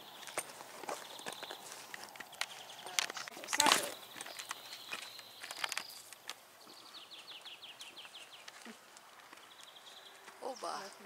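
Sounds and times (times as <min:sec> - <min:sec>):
songbird singing: 0:00.0 - 0:11.0
faint footstep clicks: 0:00.1 - 0:11.0.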